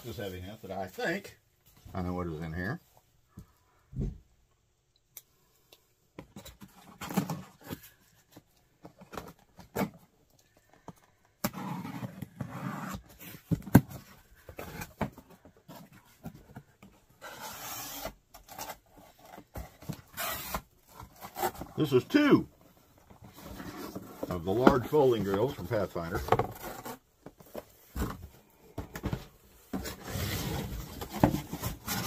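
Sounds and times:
cardboard scraping and rustling: 0:11.5 - 0:32.0.

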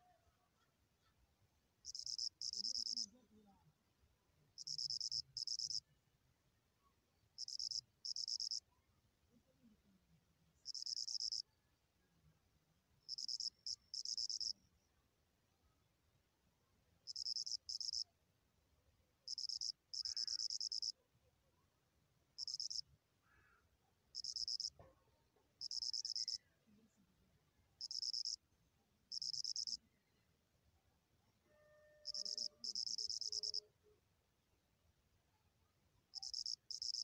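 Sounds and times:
insect trilling: 0:01.8 - 0:03.1, 0:04.6 - 0:05.8, 0:07.4 - 0:08.6, 0:10.7 - 0:11.4, 0:13.1 - 0:14.5, 0:17.1 - 0:18.0, 0:19.3 - 0:20.9, 0:22.4 - 0:22.8, 0:24.2 - 0:24.7, 0:25.6 - 0:26.4, 0:27.8 - 0:28.4, 0:29.1 - 0:29.8, 0:32.0 - 0:33.6, 0:36.1 - 0:37.0.

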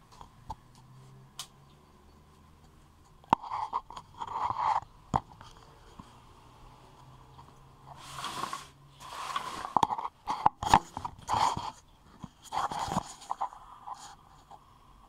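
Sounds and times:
rubbing and scraping: 0:03.3 - 0:06.2, 0:07.8 - 0:14.6.

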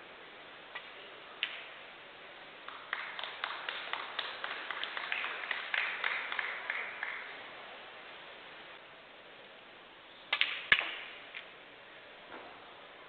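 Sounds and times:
audience applause: 0:02.7 - 0:07.4.

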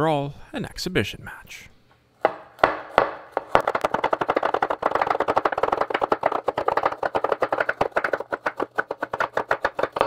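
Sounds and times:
knife chopping on wooden board: 0:02.2 - 0:10.0.

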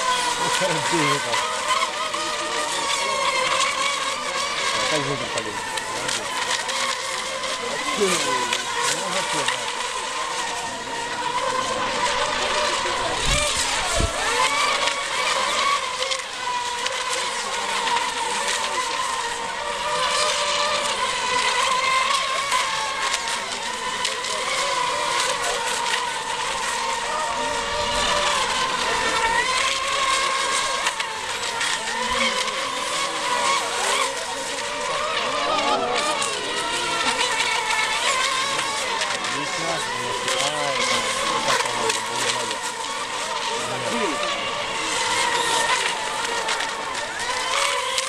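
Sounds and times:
electric boat motors whining: 0:00.0 - 0:48.0.

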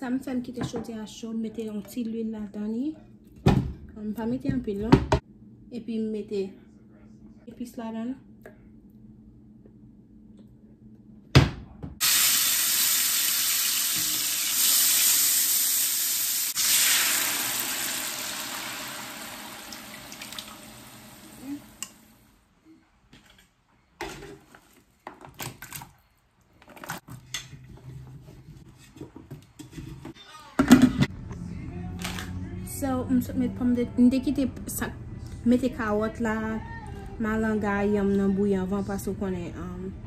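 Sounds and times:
hot oil sizzling in a pot: 0:12.0 - 0:22.1.

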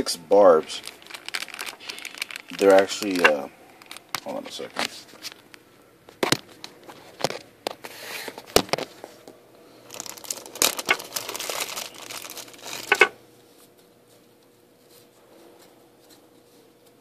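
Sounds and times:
plastic bag crinkling: 0:00.6 - 0:05.4, 0:09.8 - 0:13.2.

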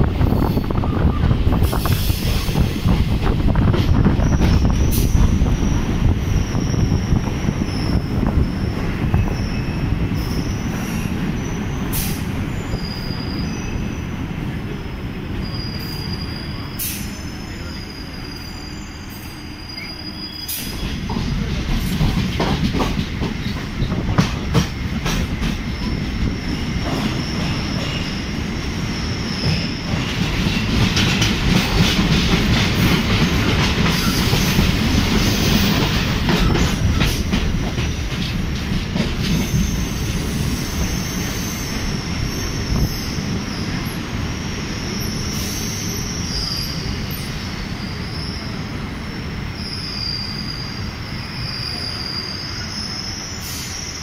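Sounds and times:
rail clicks: 0:00.0 - 0:13.8, 0:19.1 - 0:28.5, 0:29.2 - 0:48.7
train rumbling along track: 0:00.0 - 0:54.0
high-pitched wheel squeal: 0:12.5 - 0:14.0, 0:15.4 - 0:20.8, 0:49.6 - 0:54.0.

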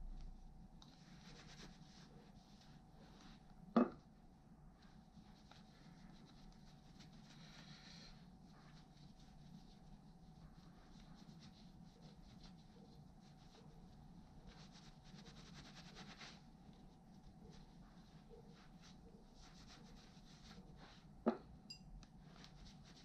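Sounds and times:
low room hum: 0:00.0 - 0:23.0
cloth rag rubbing metal: 0:01.1 - 0:02.8, 0:14.5 - 0:16.4.

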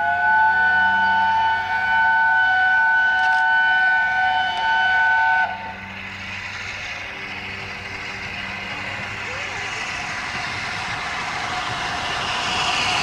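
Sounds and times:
steam locomotive whistle blast: 0:00.0 - 0:05.9
approaching train noise: 0:00.0 - 0:13.0.

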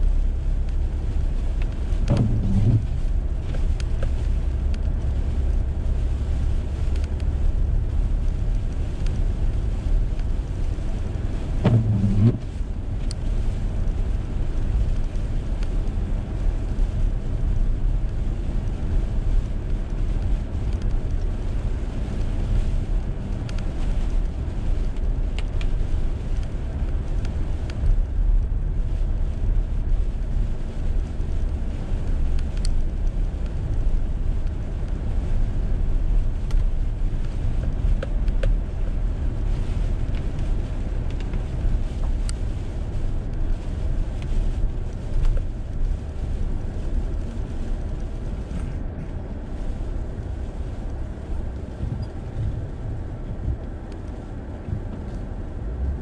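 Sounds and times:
car engine and tyres rumbling: 0:00.0 - 0:56.0
brief low hum: 0:02.1 - 0:03.0, 0:11.6 - 0:12.6.

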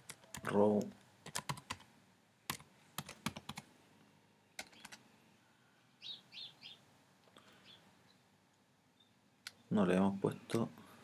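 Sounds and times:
faint high chirps: 0:04.4 - 0:06.8, 0:08.9 - 0:09.7.

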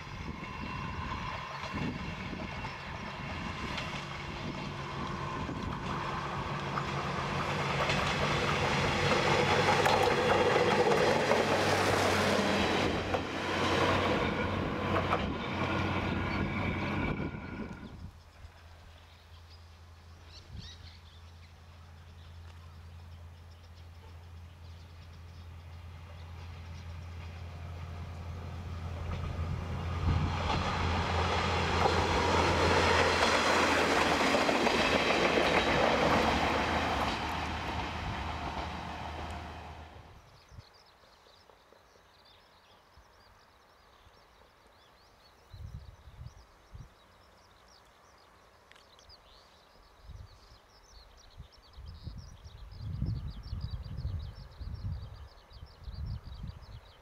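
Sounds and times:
wheels on rail: 0:00.0 - 0:19.2, 0:21.9 - 0:40.4
diesel railcar passing: 0:00.0 - 0:41.8.

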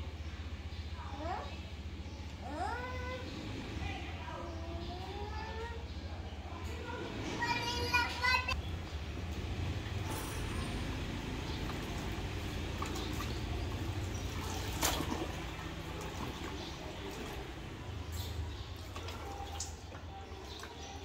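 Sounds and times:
water splashing in a tub: 0:09.5 - 0:21.0.

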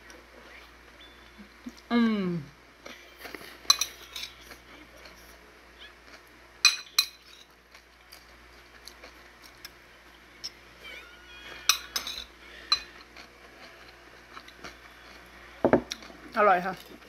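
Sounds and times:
spoon clinking against ceramic bowl: 0:11.7 - 0:12.9.

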